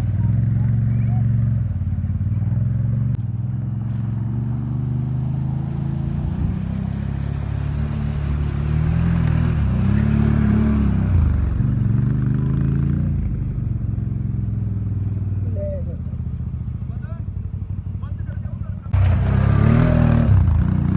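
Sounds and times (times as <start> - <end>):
atv engine running: 0.0 - 20.9.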